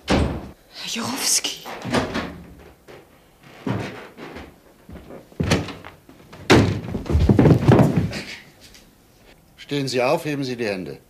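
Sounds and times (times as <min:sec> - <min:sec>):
door bangs: 0:00.0 - 0:00.6, 0:01.7 - 0:02.9, 0:06.4 - 0:08.4.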